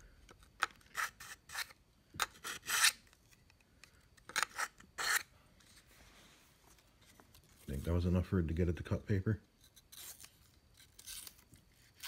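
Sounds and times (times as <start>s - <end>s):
knife rasping through sharpener: 0.9s - 3.0s, 4.4s - 5.3s.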